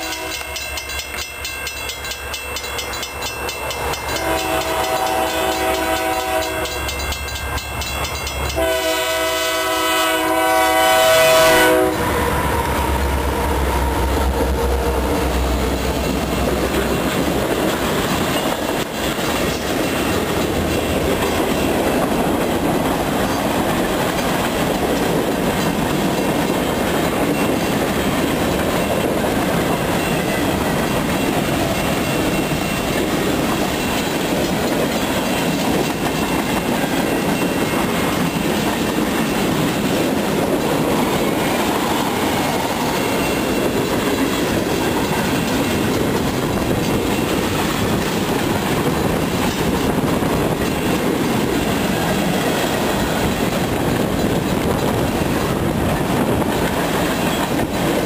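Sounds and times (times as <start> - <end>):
train horn blasts: 0.0 - 0.8, 4.1 - 6.9, 8.5 - 14.2
train wheels rumbling on rails: 0.0 - 58.0.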